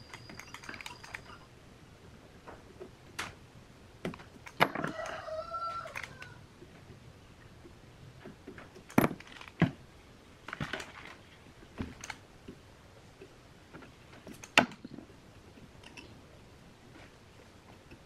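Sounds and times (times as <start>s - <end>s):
light metallic clicks and clinks: 0.0s - 1.5s.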